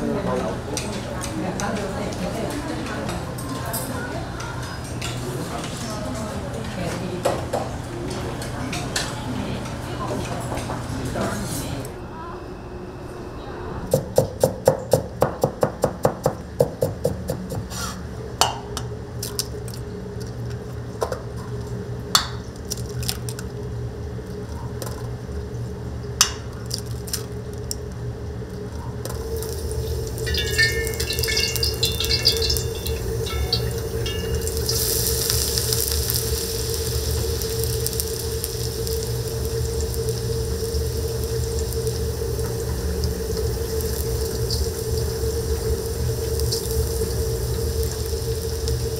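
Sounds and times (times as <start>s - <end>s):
water running from a tap: 29.1s - 48.9s.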